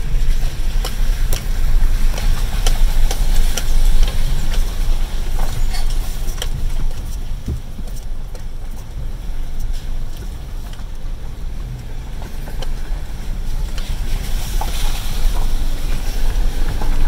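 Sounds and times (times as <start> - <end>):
vehicle engine rumble: 0.0 - 17.0
tyre noise hiss: 8.5 - 17.0.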